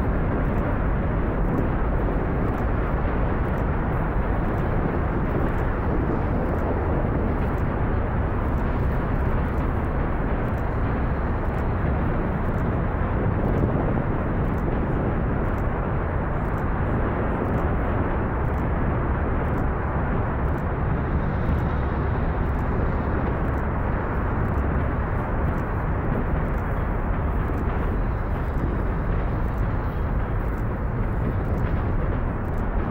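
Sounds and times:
rocket engines rumbling: 0:00.0 - 0:32.9.

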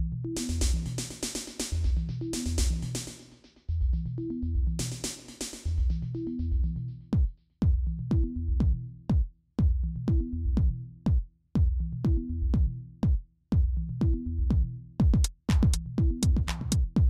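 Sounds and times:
electronic music with drum-machine beat: 0:00.0 - 0:09.2, 0:13.6 - 0:17.0.

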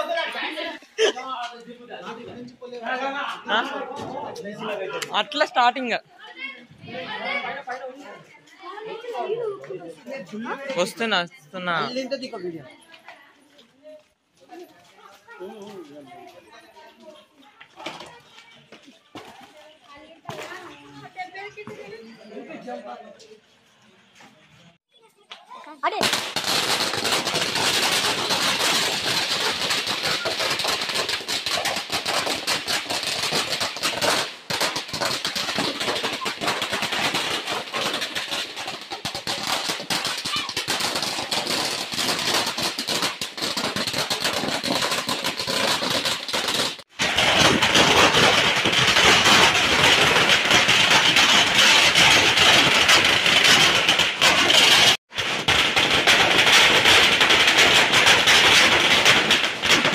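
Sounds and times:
firecracker string bangs: 0:26.0 - 0:59.9.

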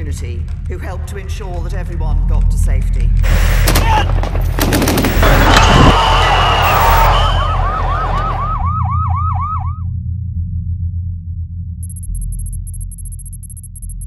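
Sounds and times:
police siren yelping: 0:05.2 - 0:09.9.

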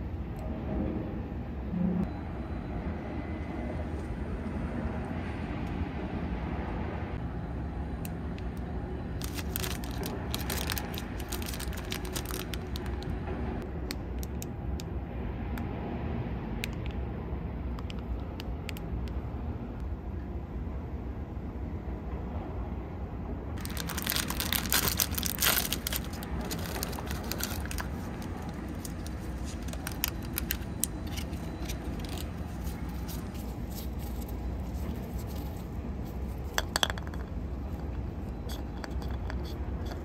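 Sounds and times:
low background rumble: 0:00.0 - 0:40.0
crackles and clicks: 0:08.1 - 0:13.2, 0:23.6 - 0:40.0.

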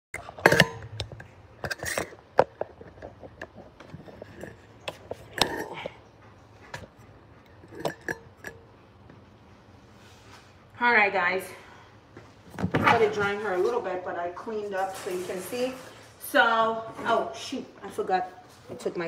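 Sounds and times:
handling knocks and clinks: 0:00.2 - 0:06.1, 0:06.7 - 0:09.3.

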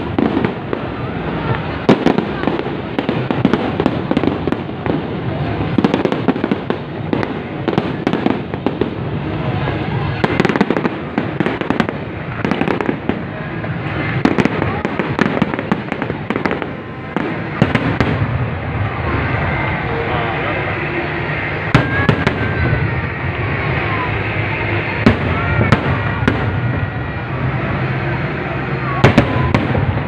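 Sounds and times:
fireworks crackle: 0:00.0 - 0:30.0.

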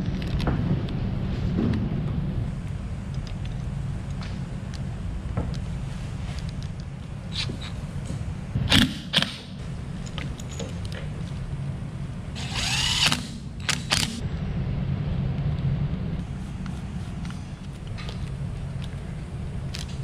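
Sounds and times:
steady low hum: 0:00.0 - 0:20.0
cordless drill spinning up: 0:12.4 - 0:14.1.

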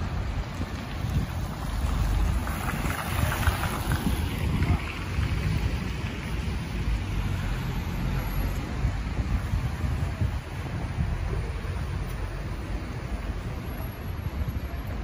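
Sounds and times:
car tyres hissing on wet road: 0:00.0 - 0:15.0
wind buffeting microphone: 0:00.0 - 0:15.0.

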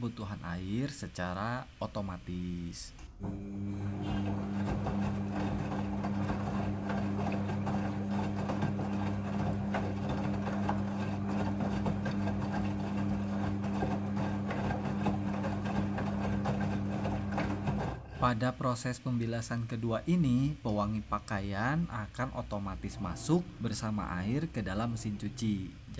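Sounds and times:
washing machine motor hum: 0:03.1 - 0:18.5, 0:22.5 - 0:25.3
water sloshing: 0:04.2 - 0:18.1.

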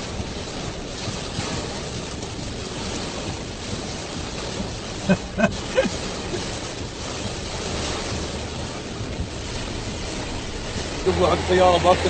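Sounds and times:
heavy rain on a car: 0:00.0 - 0:12.0.

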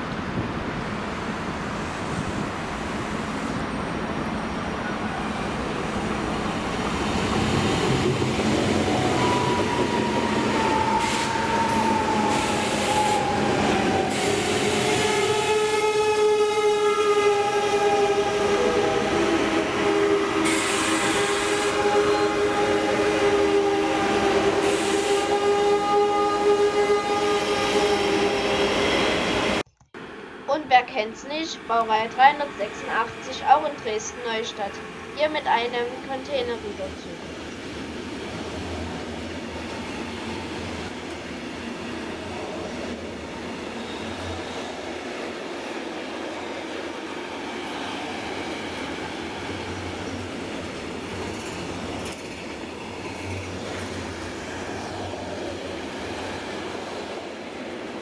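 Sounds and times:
train wheels rumbling on rail: 0:00.0 - 0:29.6, 0:36.6 - 0:58.0.

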